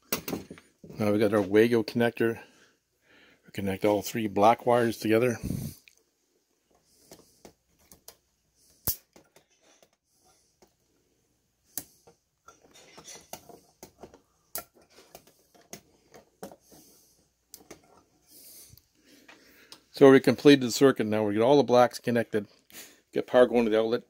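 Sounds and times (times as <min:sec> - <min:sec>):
rustling wires being handled: 0:11.7 - 0:20.0.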